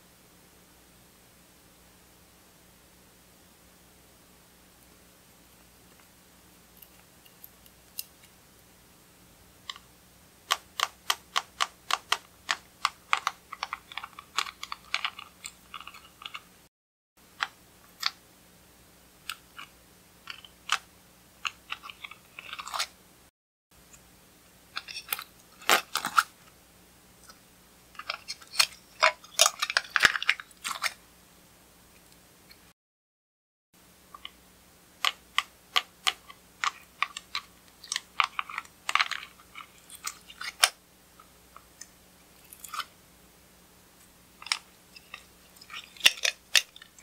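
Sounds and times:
plastic containers clicking and crackling: 10.5 - 16.5, 24.8 - 26.4, 28.0 - 31.0, 35.0 - 40.8, 44.4 - 47.0.

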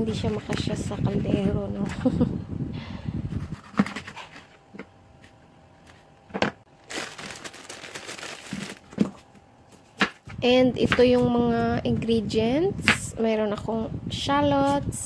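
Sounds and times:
plastic bag rustling: 6.7 - 9.4.

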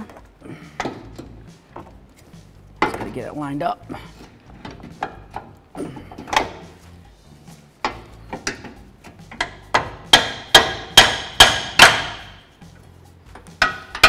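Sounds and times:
hammer striking metal bolt: 7.8 - 12.5, 13.4 - 14.0.

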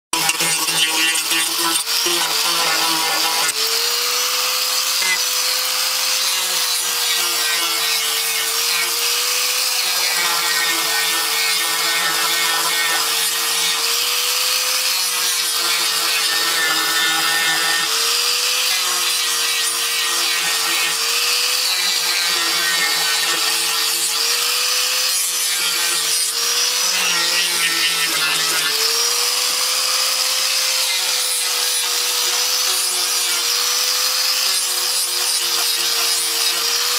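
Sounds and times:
sanding disc scraping plastic: 0.2 - 3.6
angle grinder motor whine: 0.2 - 36.9.

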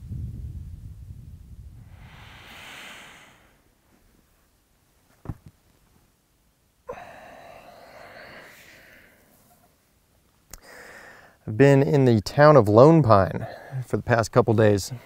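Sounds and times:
man sighing: 6.9 - 9.2.

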